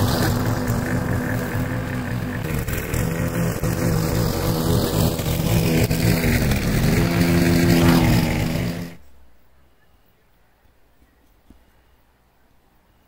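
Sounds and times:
lawn mower engine running: 0.0s - 9.2s.

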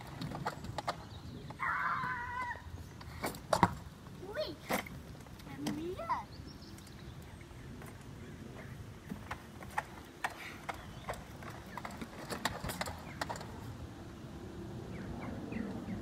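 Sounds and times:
low rumble of wheels: 0.0s - 16.0s
go-kart rattling over ramp: 9.1s - 13.7s.

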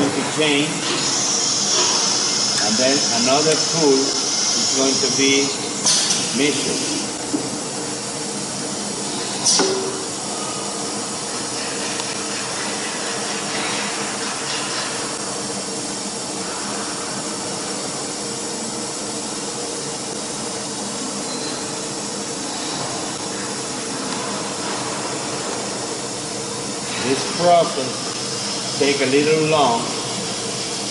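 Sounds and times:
machine hum and hiss: 0.0s - 30.9s.

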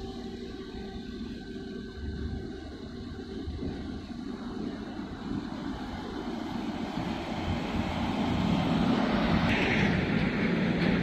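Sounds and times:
wind buffeting microphone: 2.1s - 11.0s
large ship rumble: 3.4s - 11.0s.

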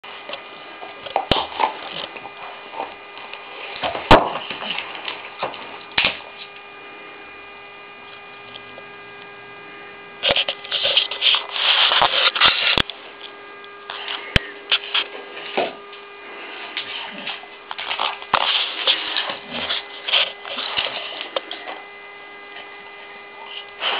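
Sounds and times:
electrical hum: 0.0s - 23.9s
dog gnawing a bone: 0.2s - 6.6s, 16.7s - 23.9s.

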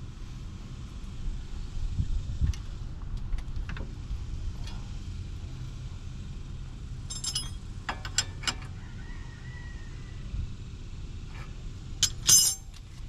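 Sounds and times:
steady low rumble: 0.0s - 8.4s
wrench clinking on metal nut: 7.1s - 8.6s, 12.0s - 12.8s.

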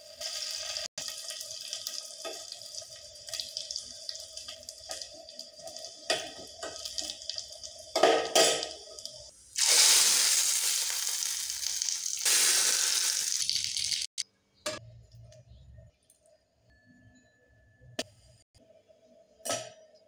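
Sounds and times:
loud sizzle: 0.0s - 8.0s, 8.6s - 14.2s
spices frying in hot oil: 0.0s - 14.2s.

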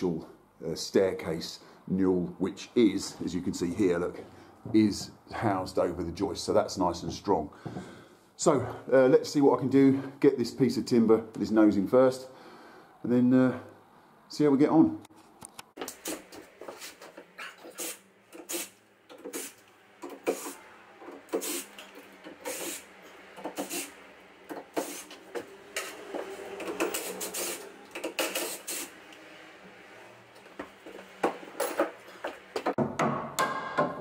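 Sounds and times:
cordless drill driving screws: 21.3s - 23.9s, 24.7s - 25.2s.

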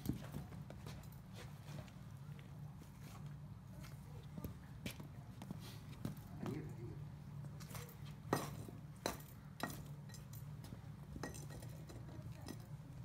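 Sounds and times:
steady low hum: 0.0s - 13.0s
butchering tools clinking: 7.7s - 13.0s.

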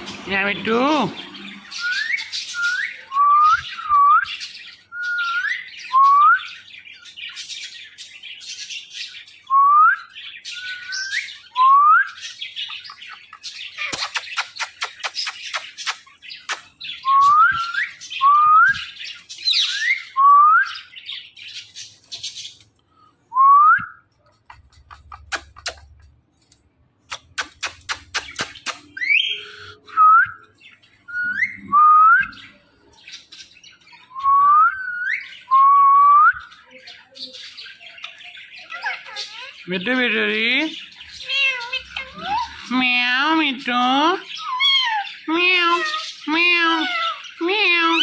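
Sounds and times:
parrot whistling: 1.7s - 4.3s, 31.1s - 32.6s
sharp clicks: 24.5s - 29.0s
parrot harsh chattering call: 38.6s - 39.7s, 40.8s - 42.8s, 44.2s - 48.0s.

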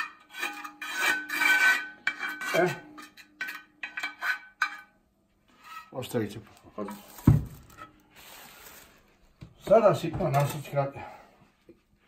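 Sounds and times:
utensil scraping clay lid: 0.0s - 4.9s.

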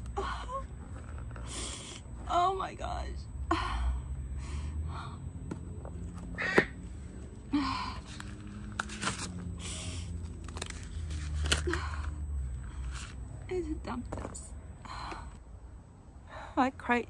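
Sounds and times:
woman sobbing: 0.0s - 0.8s.

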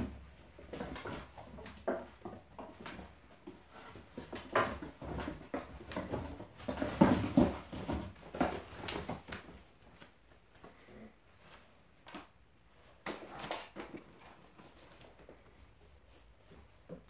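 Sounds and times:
paws knocking on wooden ramps: 0.0s - 9.7s.

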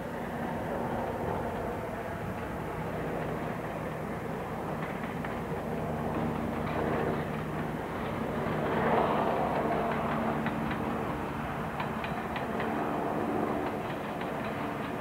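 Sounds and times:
diesel locomotive engine drone: 0.0s - 15.0s
wheels clicking over rail joints: 0.2s - 15.0s.

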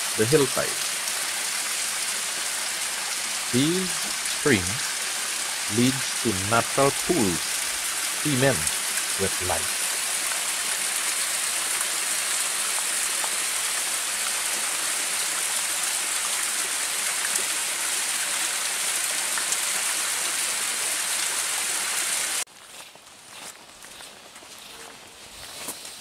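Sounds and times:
stream splashing over rocks: 9.7s - 22.4s.

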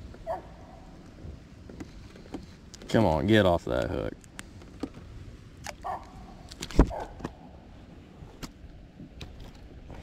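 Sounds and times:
light clicks and knocks: 1.1s - 3.0s.

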